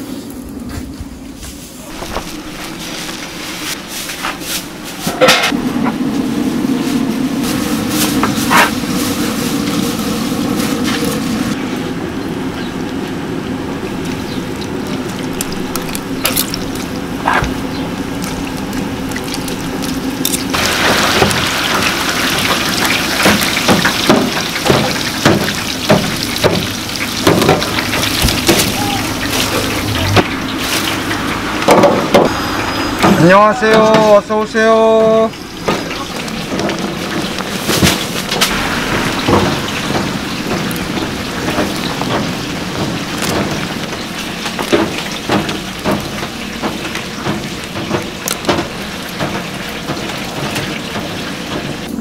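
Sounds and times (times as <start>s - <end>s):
low hum: 0.0s - 22.9s, 25.8s - 33.1s, 35.3s - 46.5s
oil deep-frying: 1.8s - 52.0s
sauce bubbling: 12.4s - 31.6s.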